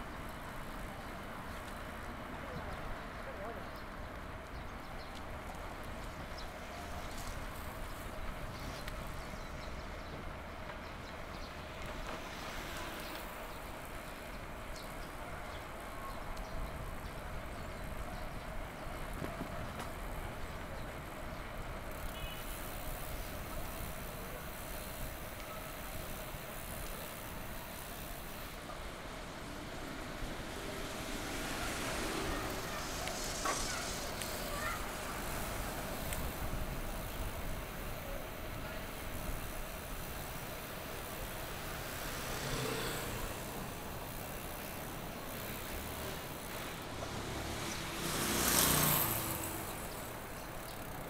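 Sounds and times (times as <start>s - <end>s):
city street traffic: 0.0s - 51.0s.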